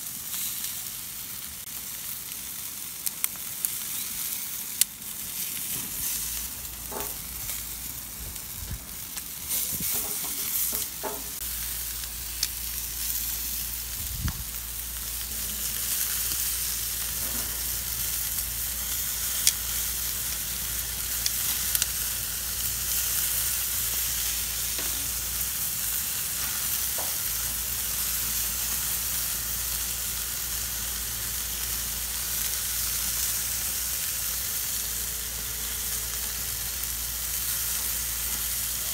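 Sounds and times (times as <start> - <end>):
sausages sizzling on a grill: 0.0 - 38.9.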